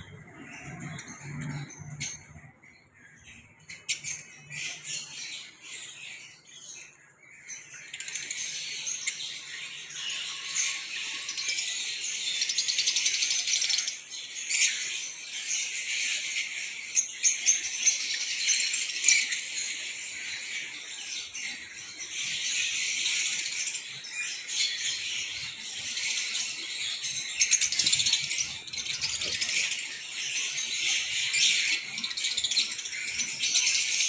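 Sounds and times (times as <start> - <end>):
lovebirds chattering: 15.6 - 34.0.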